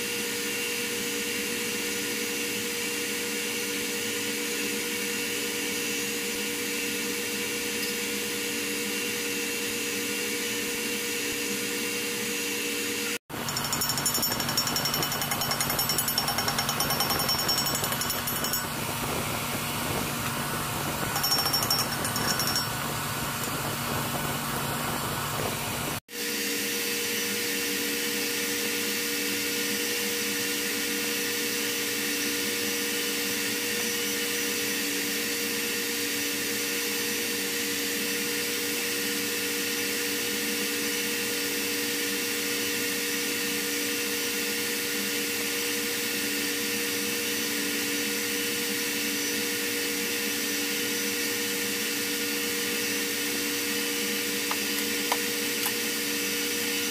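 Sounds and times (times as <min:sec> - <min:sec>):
engine room machinery drone: 0:12.7 - 0:26.4.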